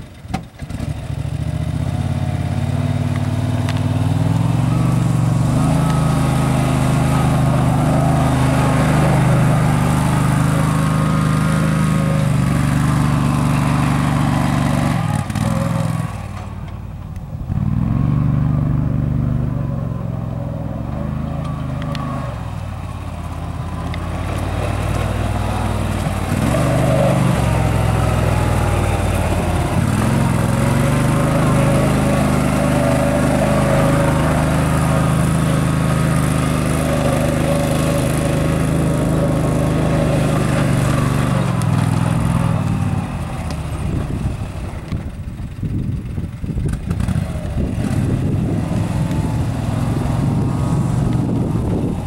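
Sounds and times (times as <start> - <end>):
utility vehicle engine running: 0.0 - 52.0.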